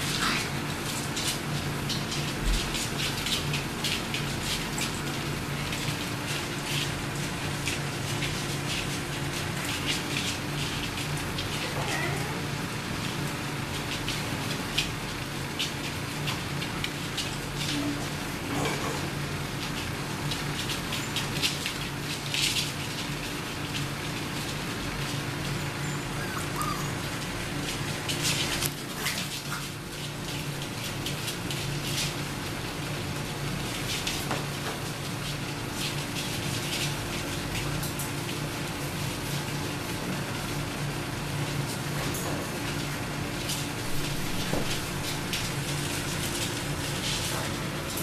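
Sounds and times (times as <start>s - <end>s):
puppies scrabbling on blankets: 0.0s - 48.0s.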